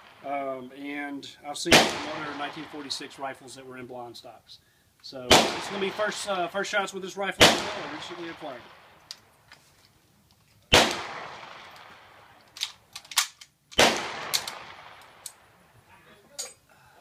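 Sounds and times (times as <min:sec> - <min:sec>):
loud echoing gunshots: 0:01.6 - 0:03.4, 0:05.3 - 0:06.7, 0:07.4 - 0:09.0, 0:10.7 - 0:12.4, 0:13.8 - 0:15.6.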